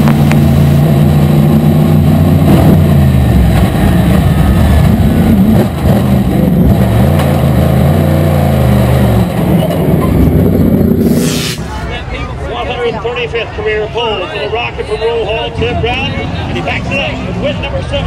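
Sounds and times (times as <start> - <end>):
race car engine revving: 0.0 - 12.0.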